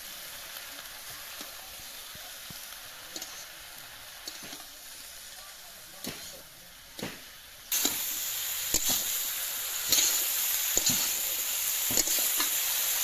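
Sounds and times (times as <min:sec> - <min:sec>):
greens sizzling in hot oil: 0:00.0 - 0:13.0
metal spatula scraping pan: 0:03.1 - 0:03.6, 0:04.2 - 0:04.7.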